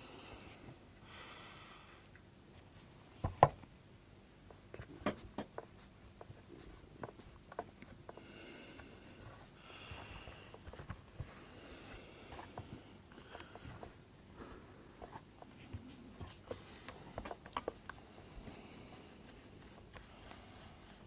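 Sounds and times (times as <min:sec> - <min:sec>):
stiff brush scrubbing: 0:15.1 - 0:21.0.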